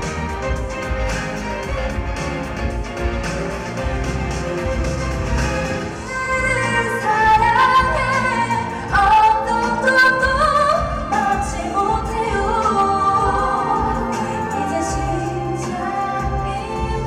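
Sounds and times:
women singing over backing track: 5.8s - 17.0s.

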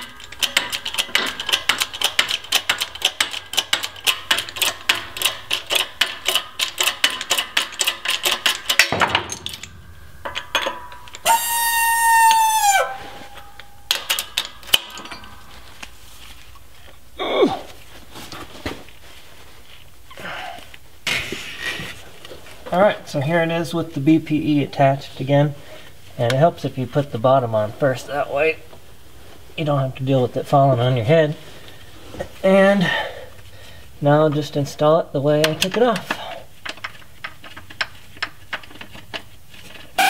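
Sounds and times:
knocks: 8.8s - 11.1s
squeal dropping in pitch: 11.3s - 13.4s.

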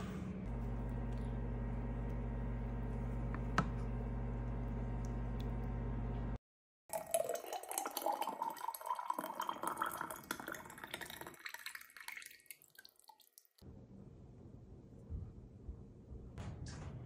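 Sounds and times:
sauce pouring into glass jar: 6.9s - 12.8s.

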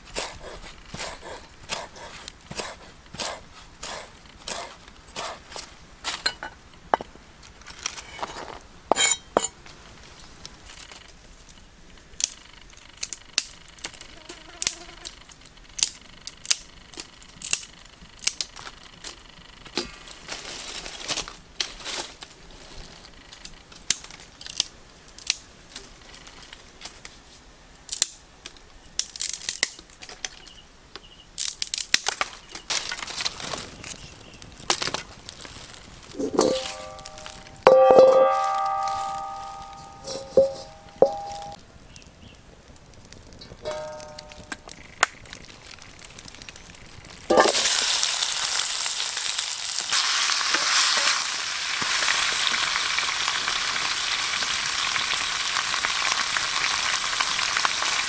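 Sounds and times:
fire crackling: 0.0s - 58.0s
dry twigs crunching and snapping: 15.8s - 19.2s, 23.1s - 27.1s, 27.8s - 30.5s, 31.4s - 51.2s.

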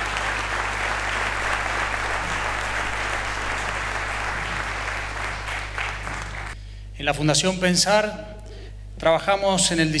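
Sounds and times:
audience applauding: 0.0s - 6.6s
low electrical hum: 0.0s - 10.0s.

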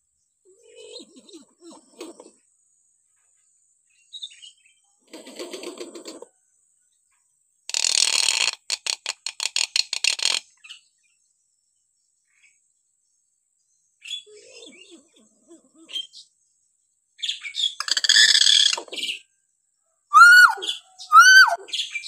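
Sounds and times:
myna bird calling: 20.1s - 22.0s.

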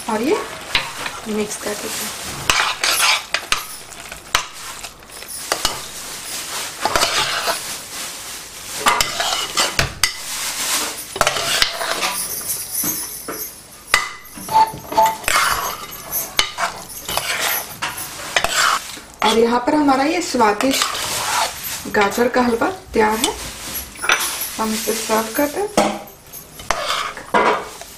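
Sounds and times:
metal spoon scraping pot: 0.4s - 6.0s, 6.8s - 7.6s, 8.8s - 12.5s, 13.9s - 19.4s, 20.4s - 27.8s
metallic clink: 11.7s - 18.2s.

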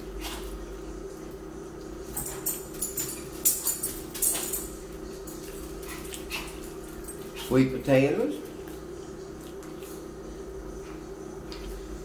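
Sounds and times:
steady hum: 0.0s - 12.0s
wet chewing and smacking: 8.5s - 10.0s.

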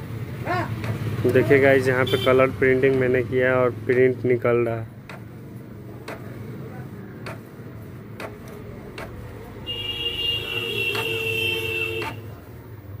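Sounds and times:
printer clicks: 6.0s - 6.4s, 8.1s - 9.3s, 10.9s - 11.2s.

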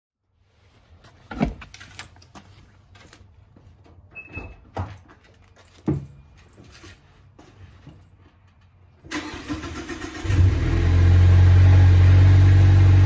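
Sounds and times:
footsteps: 0.5s - 8.8s.

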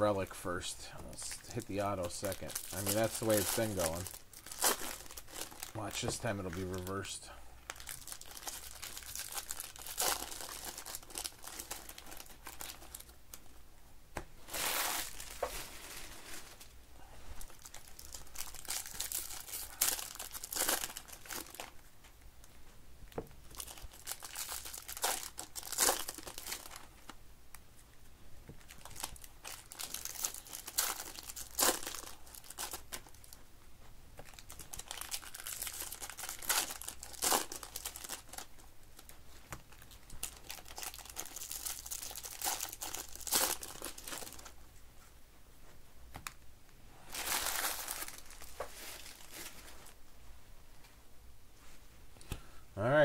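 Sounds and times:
foil wrappers crinkling and tearing: 1.1s - 7.1s, 7.7s - 13.2s, 14.5s - 16.7s, 17.4s - 21.8s, 23.4s - 27.2s, 28.6s - 33.4s, 34.2s - 44.6s, 47.0s - 50.0s.

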